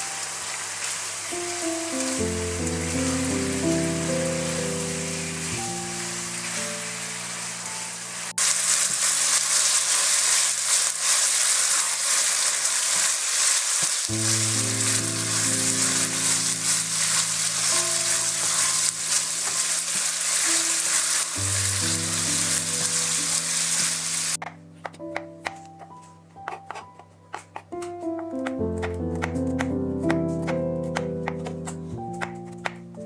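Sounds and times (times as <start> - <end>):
chicken sizzling in a wok: 0.0 - 24.4
soft background music: 1.4 - 8.4, 14.1 - 33.0.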